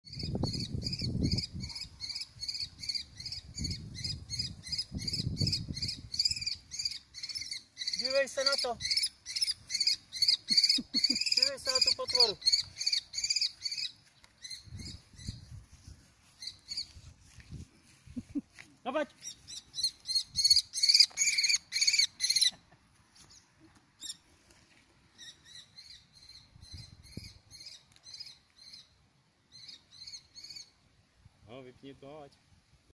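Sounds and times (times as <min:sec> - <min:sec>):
bird of prey calling: 0:00.1 - 0:15.5, 0:16.4 - 0:16.9, 0:19.2 - 0:22.6, 0:25.2 - 0:30.8
high chirping: 0:00.1 - 0:15.6, 0:16.2 - 0:17.1, 0:19.2 - 0:22.6.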